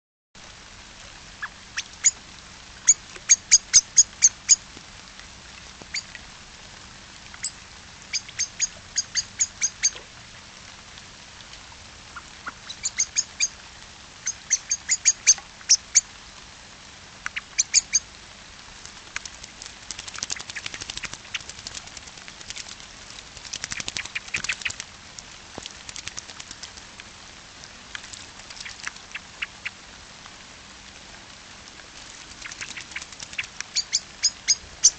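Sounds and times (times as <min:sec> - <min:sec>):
light rain hiss: 0:00.4 - 0:34.9
bird splashing and flapping in water: 0:18.8 - 0:27.1, 0:27.9 - 0:29.5, 0:31.9 - 0:34.4.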